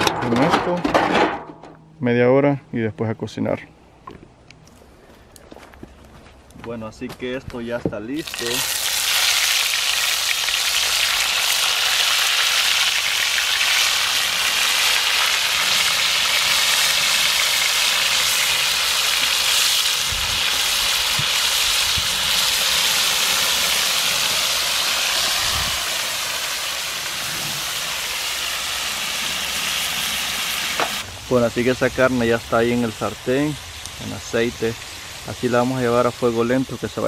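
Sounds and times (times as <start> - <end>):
meat sizzling in hot oil: 8.2 - 37.0.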